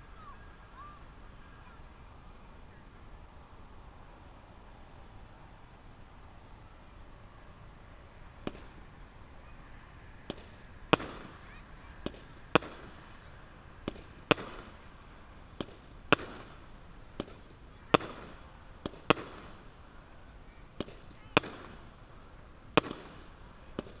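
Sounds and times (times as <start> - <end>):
firework bangs with echo: 8.4 - 8.8, 10.2 - 19.8, 20.8 - 22.0, 22.7 - 24.0.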